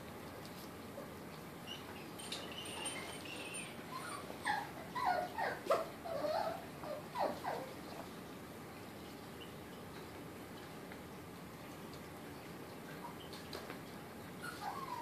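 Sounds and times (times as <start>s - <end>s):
puppy whimpering: 1.7s - 7.8s, 14.4s - 15.0s.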